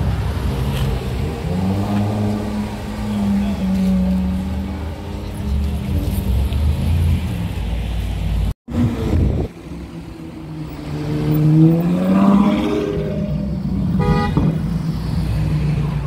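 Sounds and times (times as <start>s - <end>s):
car horn toot: 13.9s - 14.6s.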